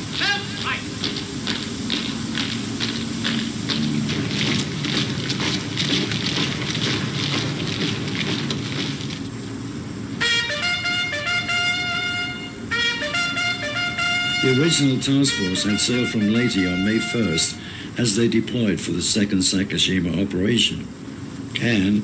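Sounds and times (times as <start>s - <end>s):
marching feet tramping: 0.0s - 17.6s
steady hiss: 0.0s - 22.0s
horn-like call: 10.2s - 17.8s.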